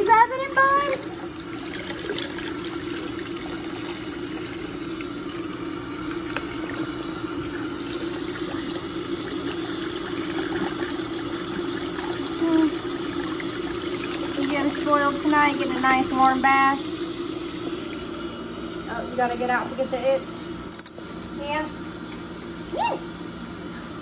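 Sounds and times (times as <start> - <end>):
faucet running into sink: 0.0 - 20.0.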